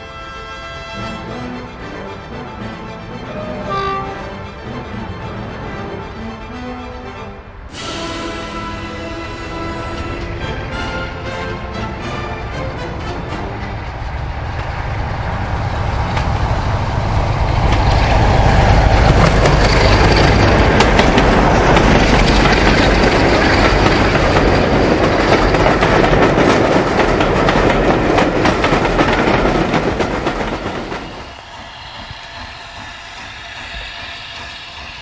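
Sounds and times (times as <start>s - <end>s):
train passing close by: 0.0s - 35.0s
train wheels clicking: 7.8s - 35.0s.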